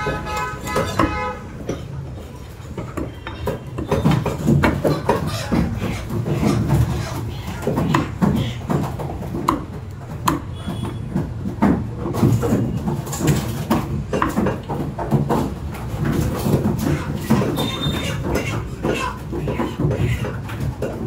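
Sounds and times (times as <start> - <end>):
cleaver chopping on wood: 3.8 - 10.7.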